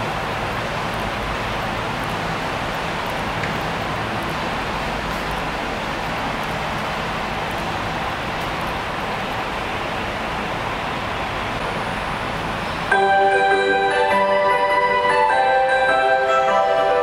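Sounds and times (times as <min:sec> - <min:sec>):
train running rush: 0:00.0 - 0:17.0
chime melody of mallet tones: 0:12.9 - 0:17.0.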